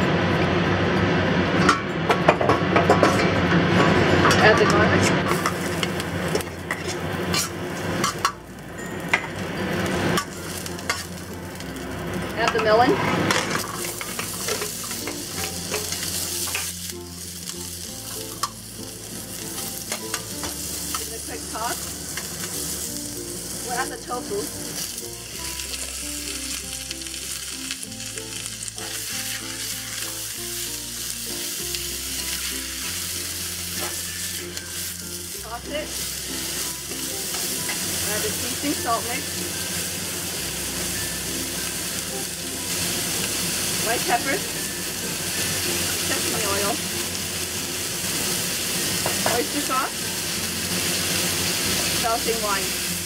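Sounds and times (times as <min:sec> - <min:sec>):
utensil tapping bowl and wok: 0:01.6 - 0:08.4, 0:12.4 - 0:16.8, 0:19.5 - 0:21.2, 0:48.9 - 0:49.8
garlic sizzling in hot oil: 0:04.0 - 0:53.0.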